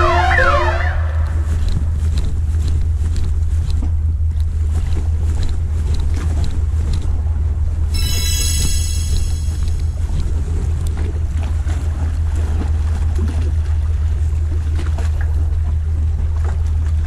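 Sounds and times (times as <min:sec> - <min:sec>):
sea: 0:00.0 - 0:17.0
wind: 0:00.0 - 0:17.0
low rumble: 0:01.0 - 0:14.1
steady electronic tones: 0:08.0 - 0:10.1.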